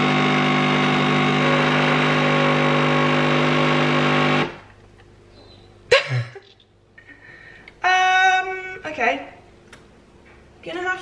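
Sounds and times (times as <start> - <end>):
espresso machine pump buzzing: 0.0 - 4.7.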